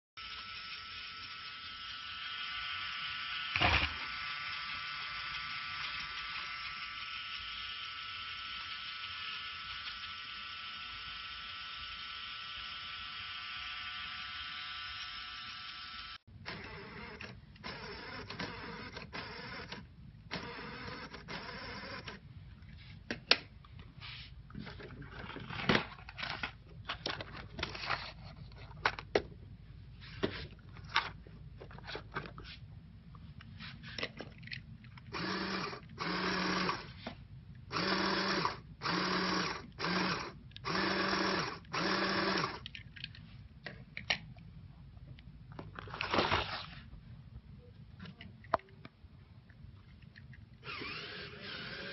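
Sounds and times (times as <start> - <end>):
toy truck motors whirring: 0.2 - 22.8, 24.6 - 29.0, 33.6 - 43.3, 50.0 - 51.9
plastic clicks: 42.5 - 44.5.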